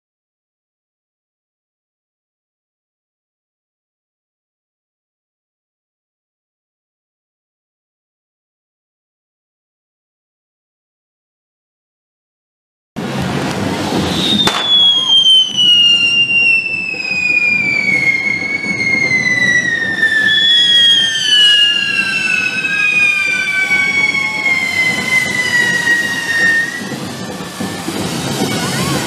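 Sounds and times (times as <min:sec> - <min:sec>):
high whistles gliding downward: 0:13.7 - 0:29.0.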